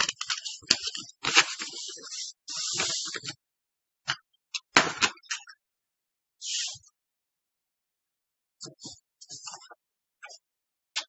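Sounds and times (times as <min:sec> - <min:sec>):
paper rustling: 0:00.0 - 0:03.4.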